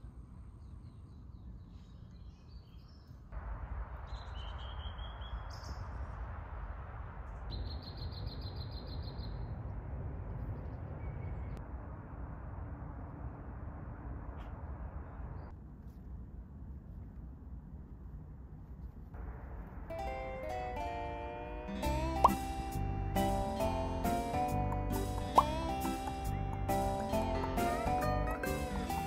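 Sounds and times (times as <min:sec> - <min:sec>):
birds chirping and trilling: 0:00.4 - 0:03.3, 0:04.0 - 0:06.0, 0:07.5 - 0:09.6
steady rushing noise: 0:05.3 - 0:07.8, 0:17.5 - 0:20.1.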